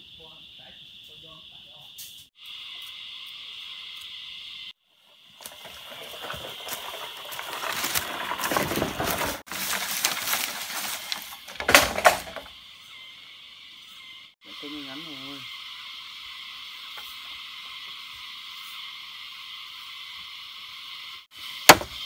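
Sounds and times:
insect chirring: 0.0s - 22.0s
footsteps through leaves: 5.4s - 12.4s.

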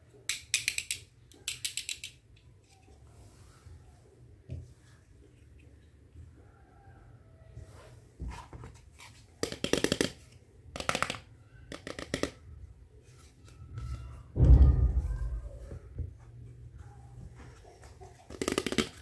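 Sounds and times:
plastic toys clacking: 0.3s - 2.8s, 9.4s - 12.4s, 18.2s - 19.0s.

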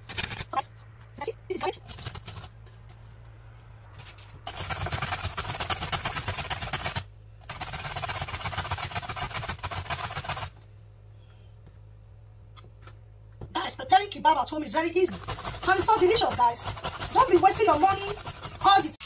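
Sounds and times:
low steady hum: 0.0s - 19.0s
vegetables grated on a metal grater: 1.6s - 2.5s, 4.5s - 10.5s, 14.7s - 19.0s.

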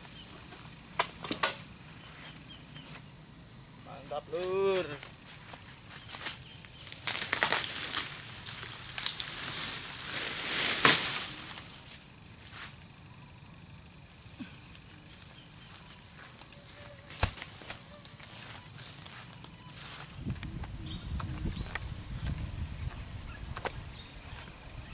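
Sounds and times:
insects buzzing: 0.0s - 24.9s
footsteps crunching through dry fronds: 3.8s - 12.8s, 15.0s - 24.6s
sharp crack of fruit bunch: 7.0s - 8.2s, 10.6s - 11.7s, 17.1s - 17.8s.

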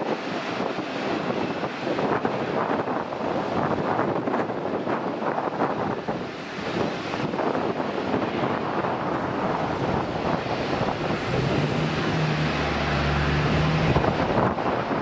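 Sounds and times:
jet engines roaring: 0.0s - 15.0s
wind buffeting microphone: 0.0s - 15.0s.

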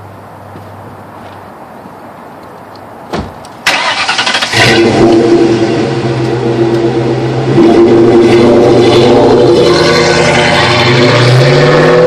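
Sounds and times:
short thump: 3.1s - 3.4s
car engine starting and idling: 3.5s - 12.0s.

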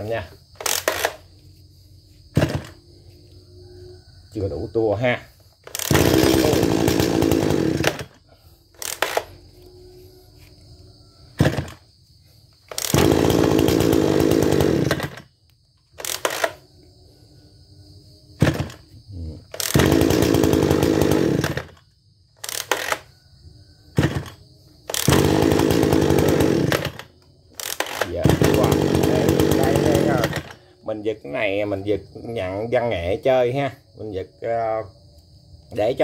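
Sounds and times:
brush cutter engine running: 0.1s - 1.3s, 2.3s - 2.8s, 5.6s - 9.4s, 11.4s - 11.8s, 12.7s - 15.3s, 16.0s - 16.6s, 18.4s - 18.8s, 19.5s - 21.8s, 22.4s - 23.1s, 24.0s - 31.0s
recoil starter pulls: 0.1s - 1.3s, 2.3s - 2.8s, 5.6s - 8.2s, 8.8s - 9.4s, 11.4s - 11.9s, 12.7s - 15.3s, 16.0s - 16.6s, 18.4s - 18.8s, 19.5s - 23.1s, 24.0s - 30.6s
engine pops: 2.3s - 2.8s, 11.4s - 11.8s, 18.4s - 18.8s.

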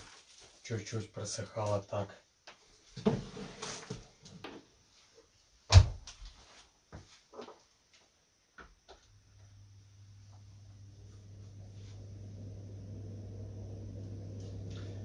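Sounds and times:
low steady hum: 8.9s - 15.0s.

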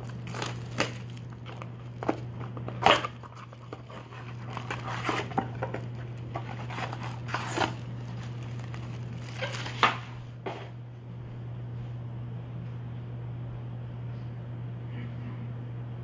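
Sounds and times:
cardboard box tearing: 0.0s - 2.2s, 2.8s - 10.0s
foil packs crinkling: 0.0s - 10.2s
steady low hum: 0.0s - 16.0s.

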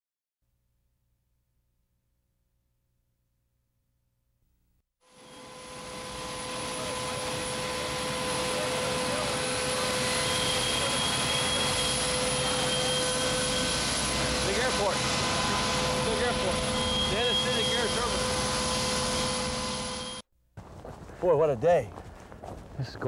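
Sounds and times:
jet engines running: 5.1s - 20.2s.

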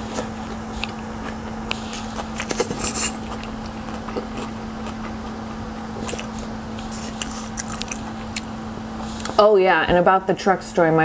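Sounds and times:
wet chewing clicks: 0.0s - 9.4s.

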